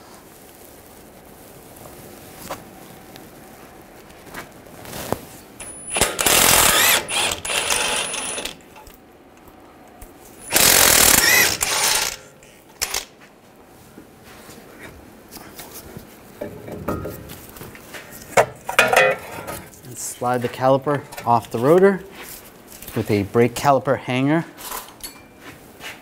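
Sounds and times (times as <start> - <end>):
ratchet ratcheting: 5.6 - 8.6, 10.5 - 13.1.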